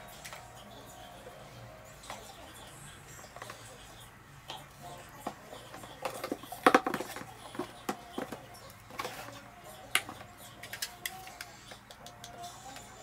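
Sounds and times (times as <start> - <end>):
hard objects clicking and knocking: 5.2 - 12.4.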